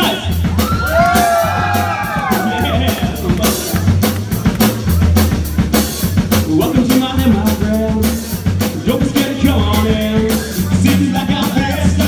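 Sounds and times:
drum kit beat: 0:00.0 - 0:12.0
live rock band playing: 0:00.0 - 0:12.0
person singing: 0:06.4 - 0:12.0.

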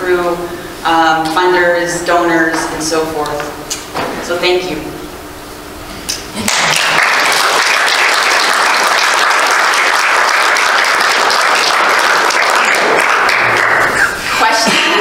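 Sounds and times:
audience applauding: 0:06.4 - 0:14.2.

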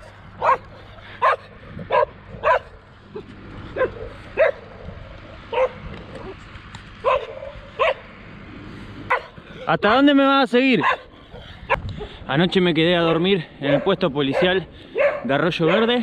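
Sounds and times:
dog barking: 0:00.4 - 0:02.8, 0:03.8 - 0:04.6, 0:05.5 - 0:06.4, 0:07.0 - 0:08.0, 0:09.1 - 0:09.4, 0:10.8 - 0:11.1, 0:13.1 - 0:16.0.

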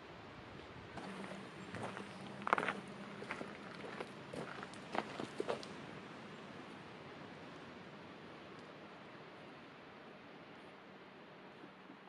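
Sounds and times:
footsteps crunching on gravel: 0:01.0 - 0:05.6.

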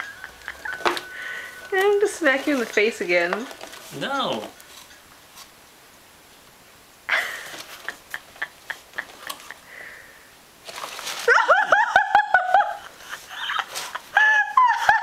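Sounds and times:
person laughing: 0:07.1 - 0:09.9, 0:11.2 - 0:15.0.

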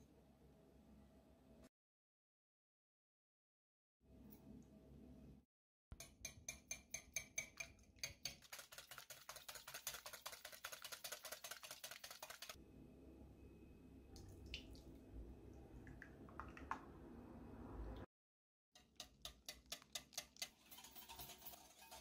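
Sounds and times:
whisk clicking against bowl: 0:06.4 - 0:12.6.

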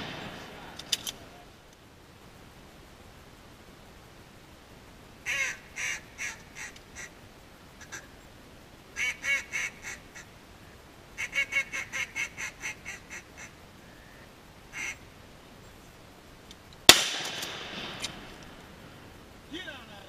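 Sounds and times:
shotgun shot with echo: 0:00.0 - 0:00.8, 0:16.9 - 0:18.4.

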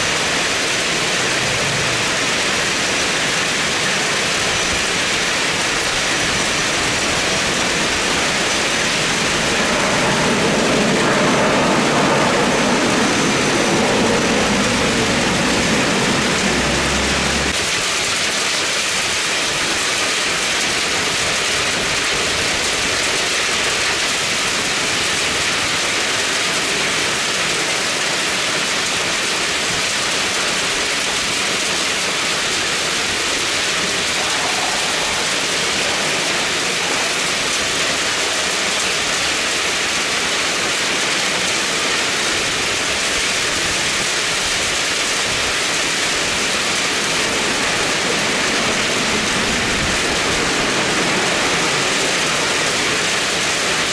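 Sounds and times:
heavy rain falling: 0:00.0 - 0:53.9.

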